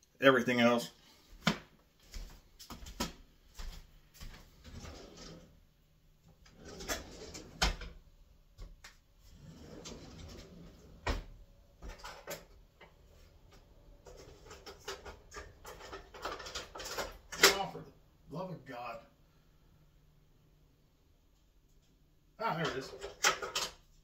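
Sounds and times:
utensils clinking in drawer: 0:14.1 - 0:17.6.

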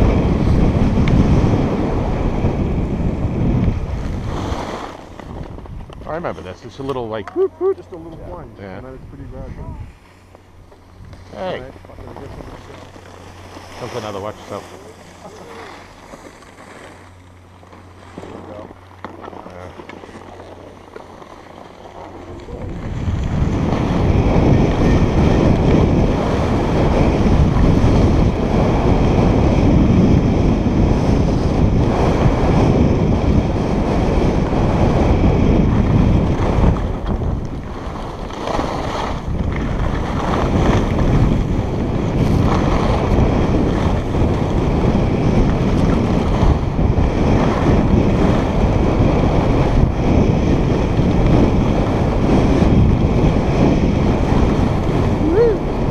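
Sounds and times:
wind buffeting microphone: 0:00.0 - 0:55.9.

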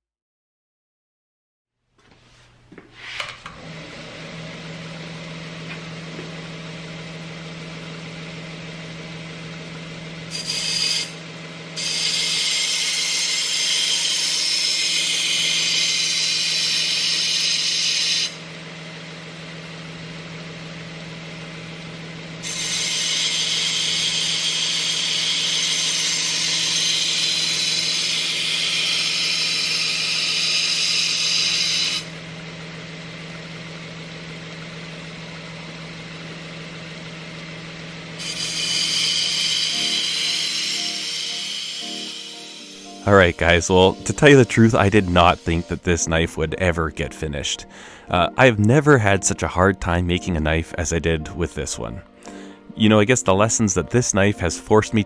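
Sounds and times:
belt grinder humming: 0:03.1 - 0:49.8
knife blade grinding on belt: 0:10.3 - 0:11.2.

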